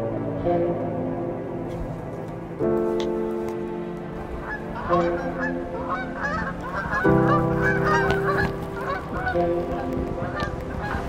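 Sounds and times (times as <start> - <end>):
music of sustained chords: 0.0 - 11.0
geese honking: 2.8 - 11.0.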